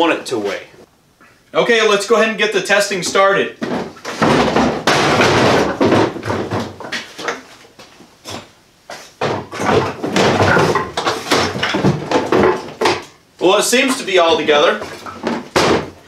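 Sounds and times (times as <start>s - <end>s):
plastic tool box clattering: 9.2s - 13.1s.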